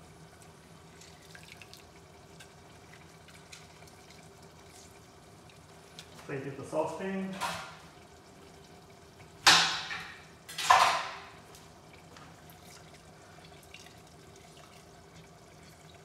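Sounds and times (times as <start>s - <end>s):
liquid splashing: 0.9s - 6.4s, 9.4s - 16.0s.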